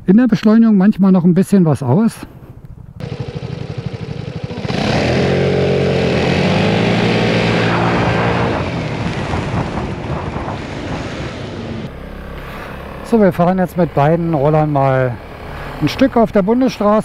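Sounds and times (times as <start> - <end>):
scooter engine accelerating hard: 3.0 - 16.1
rushing noise: 4.6 - 13.0.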